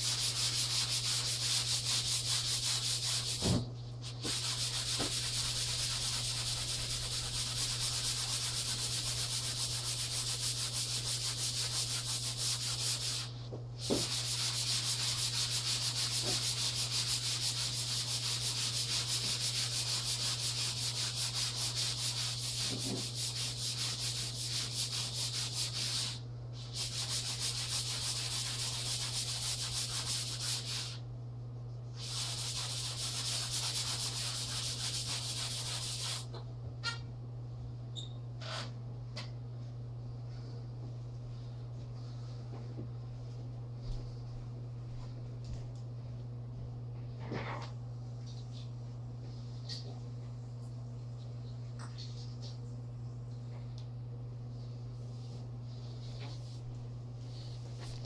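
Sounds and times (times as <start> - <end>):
hand tool rubbing a wall: 0.0 - 31.0, 32.0 - 36.3
steady low hum: 0.0 - 58.0.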